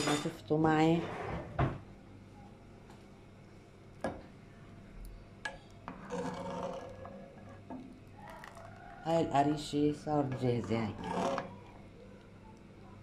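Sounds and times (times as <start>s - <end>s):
spoon scraping a pan: 5.8s - 7.8s, 10.2s - 11.6s.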